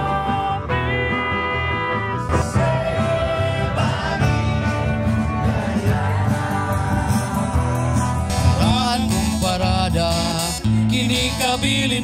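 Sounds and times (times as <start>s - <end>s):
acoustic band playing country rock: 0.0s - 12.0s
bass pulse: 2.0s - 9.8s.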